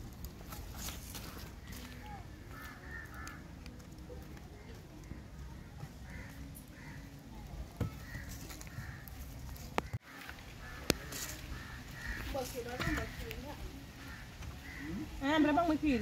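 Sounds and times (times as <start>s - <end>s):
birds giving rough calls: 1.6s - 3.6s, 5.2s - 7.3s, 7.9s - 16.0s.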